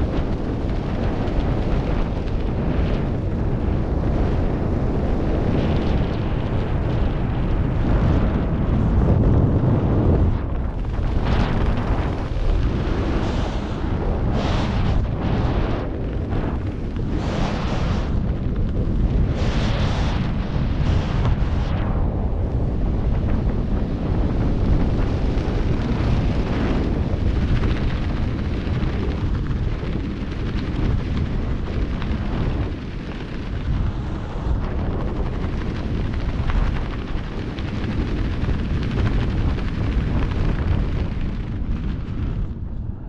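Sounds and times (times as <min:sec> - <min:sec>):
wind buffeting microphone: 0:00.0 - 0:43.0.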